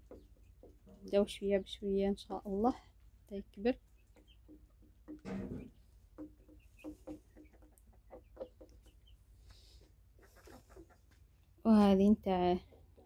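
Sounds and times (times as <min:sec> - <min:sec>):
hens clucking: 0:03.9 - 0:11.4.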